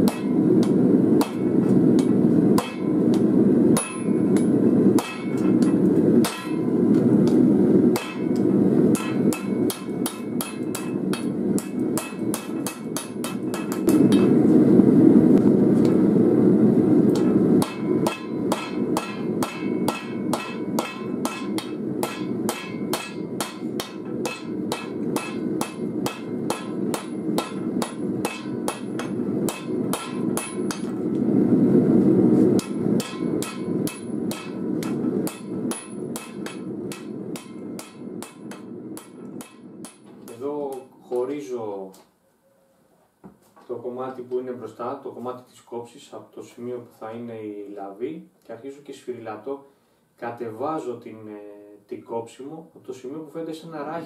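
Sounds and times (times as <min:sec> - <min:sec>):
hammer striking metal on anvil: 0:00.0 - 0:14.4, 0:17.1 - 0:31.0, 0:32.6 - 0:41.0
steady rushing noise: 0:00.0 - 0:41.7.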